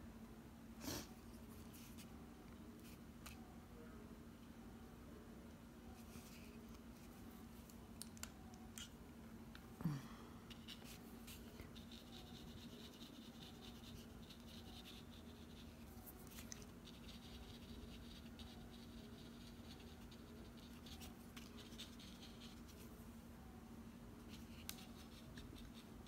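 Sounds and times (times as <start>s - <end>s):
low steady hum: 0.0s - 26.0s
paintbrush scratching on paper: 10.5s - 22.9s, 24.2s - 26.0s.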